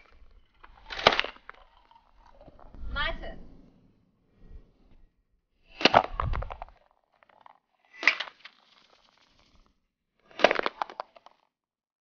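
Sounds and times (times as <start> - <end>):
pellets striking aluminium cans: 0.0 - 2.2, 5.7 - 9.2, 10.3 - 11.3.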